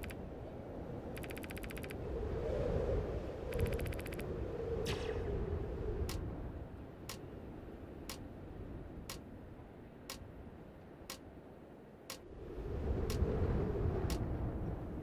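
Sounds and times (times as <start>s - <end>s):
clock ticking: 1.2s - 2.0s.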